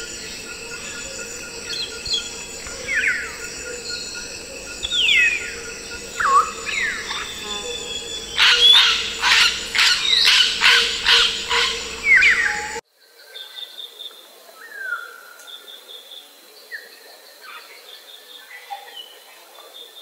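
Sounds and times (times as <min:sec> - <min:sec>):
steady high-pitched tone: 0:00.0 - 0:12.8
parrot harsh calls: 0:08.3 - 0:12.8.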